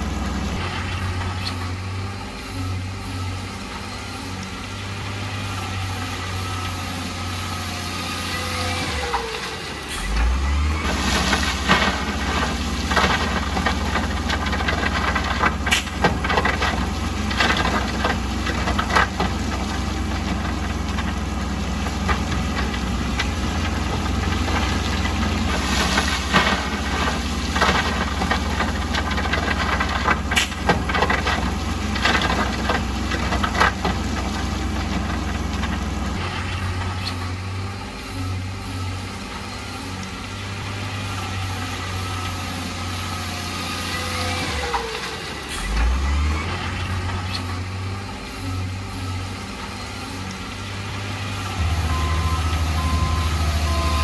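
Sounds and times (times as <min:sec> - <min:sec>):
heavy machinery diesel engines running: 0:00.0 - 0:54.0
knocks and clatter: 0:11.3 - 0:21.3.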